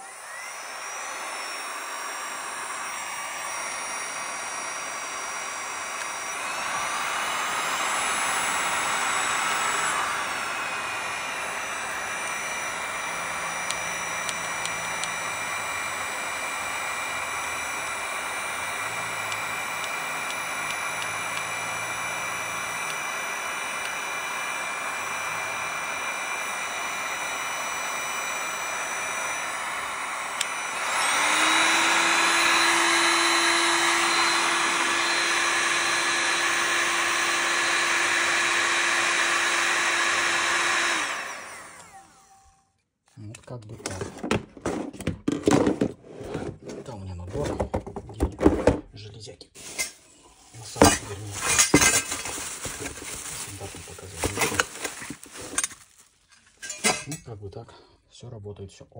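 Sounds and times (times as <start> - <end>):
heat gun fan hiss and whine: 0.0 - 42.5.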